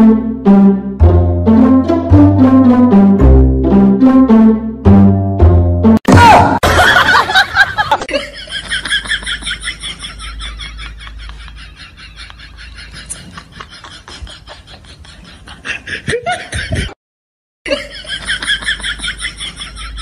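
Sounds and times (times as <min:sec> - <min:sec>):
person laughing: 0:06.6 - 0:17.0, 0:17.7 - 0:20.0.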